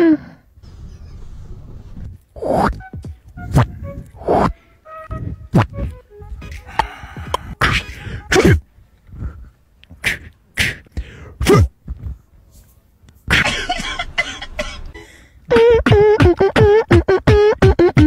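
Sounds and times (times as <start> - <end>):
man making pitched vocal noises: 6.6 - 8.7, 9.9 - 11.8.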